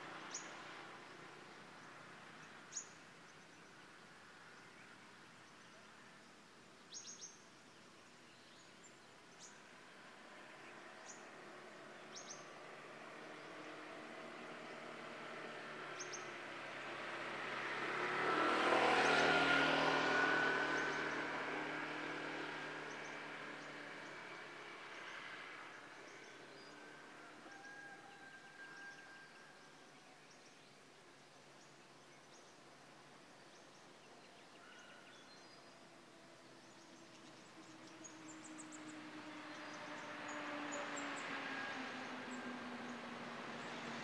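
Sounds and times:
motorbike passing: 9.8 - 29.7, 36.4 - 44.0.

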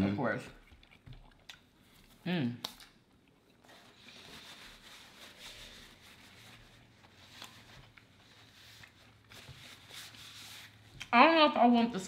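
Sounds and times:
quiet chewing: 0.5 - 4.2.

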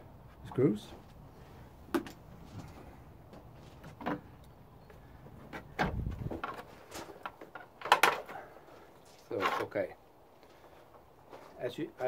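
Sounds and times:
low thud: 5.8 - 6.4.

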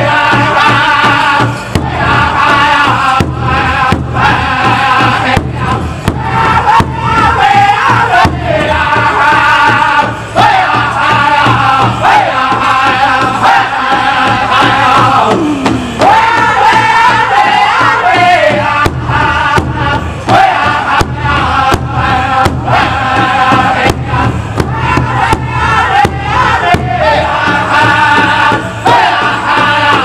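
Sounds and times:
large hide drum beating: 0.0 - 30.0
men singing in unison: 0.0 - 30.0.

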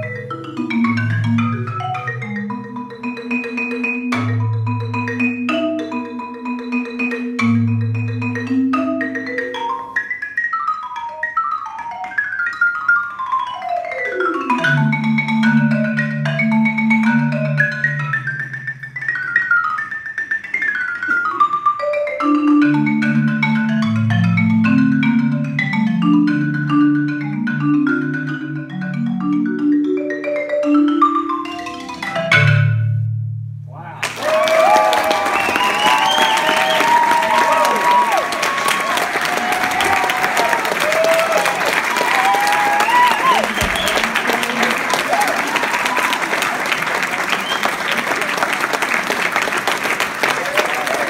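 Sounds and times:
marimba played with mallets: 0.0 - 33.4, 42.0 - 45.8.

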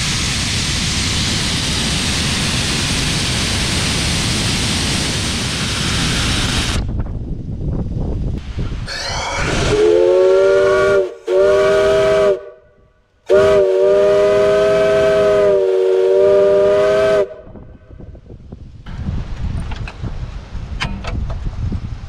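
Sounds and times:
steam hissing: 0.0 - 6.9, 8.4 - 12.6, 13.2 - 17.4
steam whistle blasts: 8.9 - 17.6.

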